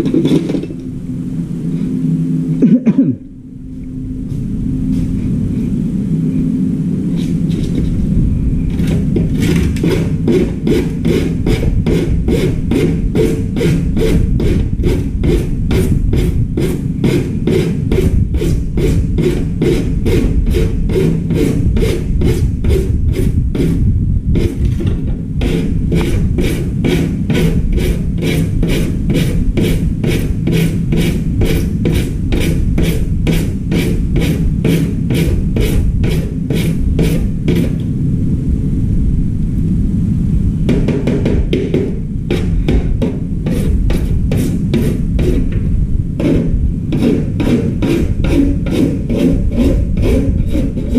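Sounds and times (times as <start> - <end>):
low rumble: 0.0 - 50.9
hand file rasping on plastic: 8.8 - 23.8, 24.4 - 37.8, 42.3 - 45.6, 46.2 - 50.9.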